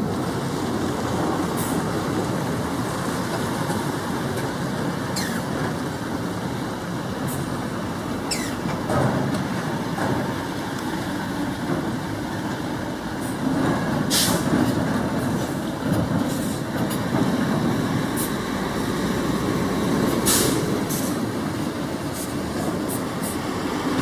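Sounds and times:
truck diesel engines rumbling: 0.0s - 24.0s
air brake hisses: 14.1s - 14.5s, 20.2s - 21.2s.

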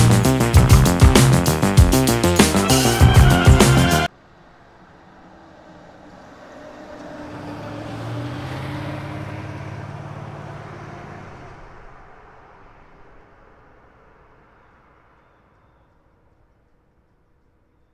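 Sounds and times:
sports car driving past: 4.1s - 15.8s.

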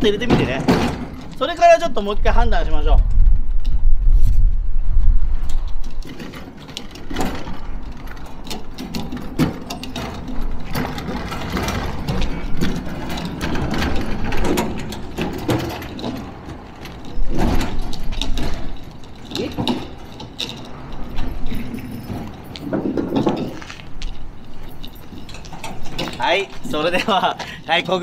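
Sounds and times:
low rumble: 1.0s - 6.2s
mechanical clicking and rattling: 5.4s - 28.0s.

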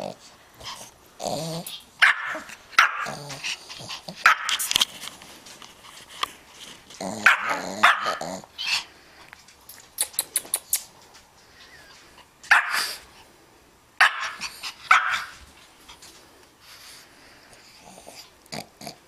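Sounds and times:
dog barking and growling: 1.2s - 4.7s, 7.0s - 8.8s, 12.5s - 13.0s, 14.0s - 15.4s.

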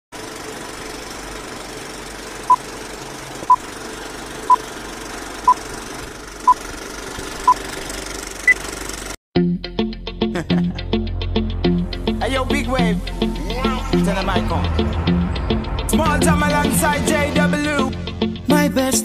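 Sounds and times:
film projector running: 0.2s - 9.2s.

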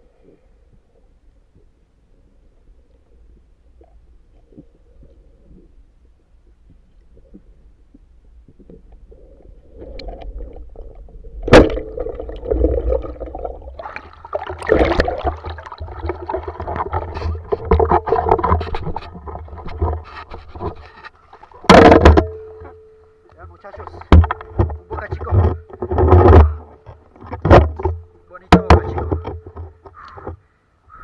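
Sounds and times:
faint underwater rumble: 0.0s - 21.7s
water splashing and sloshing: 1.5s - 30.4s.

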